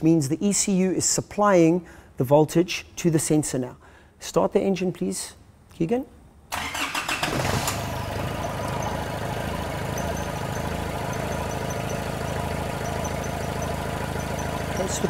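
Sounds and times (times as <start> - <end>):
diesel engine idling: 6.6 - 15.0
starter cranking diesel engine: 6.6 - 15.0.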